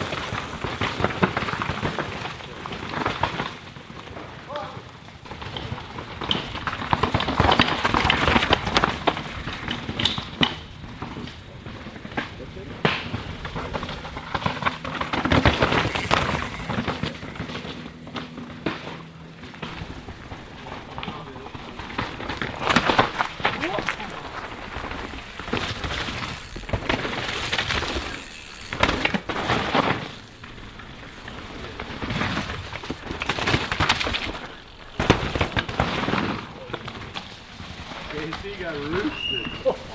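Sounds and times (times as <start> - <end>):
bike tyres rushing over rocks: 0.0 - 39.9
bike clattering knocks: 5.2 - 39.9
chain and suspension rattling: 13.2 - 34.6.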